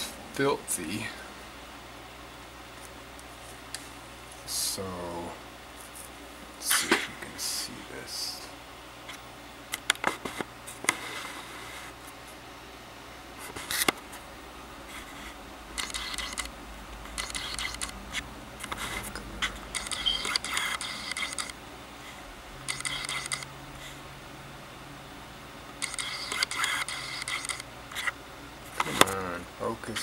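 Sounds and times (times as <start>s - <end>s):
camera autofocus motor whirring: 15.8s - 21.6s, 22.6s - 23.5s, 25.8s - 29.0s.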